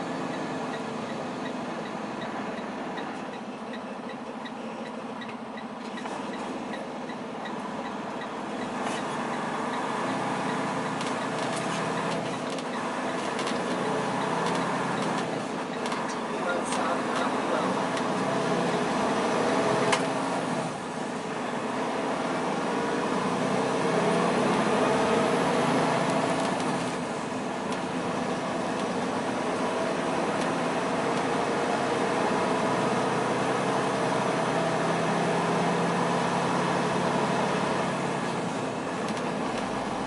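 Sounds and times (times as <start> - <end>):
road noise: 0.0 - 40.0
truck engine drone: 0.0 - 40.0.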